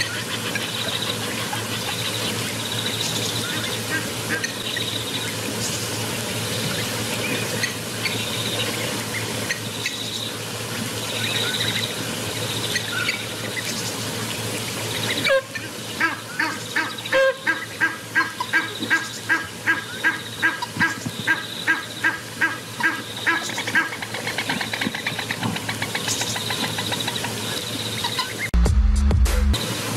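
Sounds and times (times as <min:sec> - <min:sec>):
steady outdoor hiss: 0:00.0 - 0:28.5, 0:29.5 - 0:29.9
goose honking: 0:03.4 - 0:04.6, 0:15.1 - 0:26.0.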